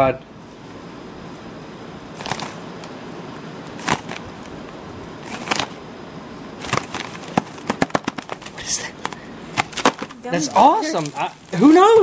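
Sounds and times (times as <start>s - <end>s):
cardboard box rustling: 2.2s - 2.6s, 3.8s - 4.3s, 5.2s - 5.8s, 6.6s - 12.0s.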